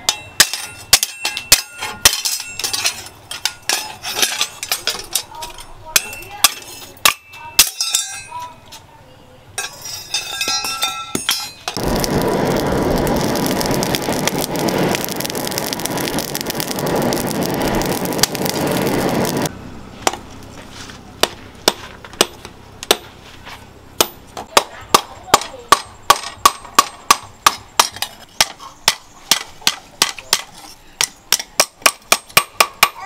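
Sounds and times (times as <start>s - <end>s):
hammer and chisel striking metal: 0.0s - 8.5s, 9.6s - 11.8s, 24.0s - 33.0s
forge blower air rushing: 11.8s - 20.0s.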